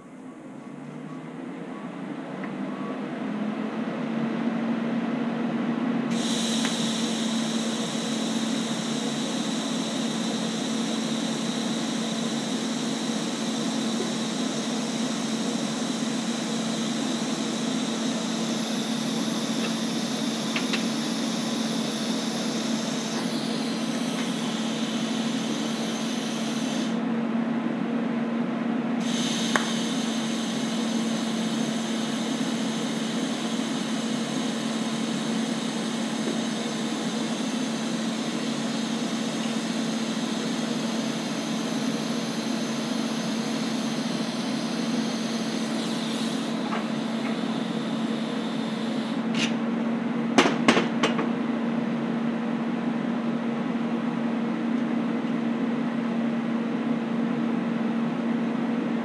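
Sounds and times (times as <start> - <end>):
welding arc hissing: 6.1 - 27.0, 29.0 - 49.6
welding machine hum: 6.1 - 27.1, 29.0 - 49.8.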